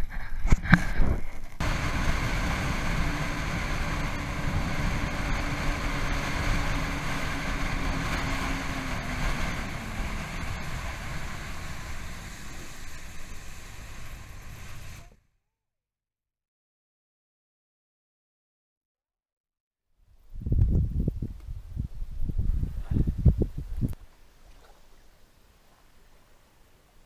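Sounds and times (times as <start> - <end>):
rushing wind and water: 1.0 - 15.0
personal watercraft engine: 1.6 - 15.2, 24.1 - 27.0.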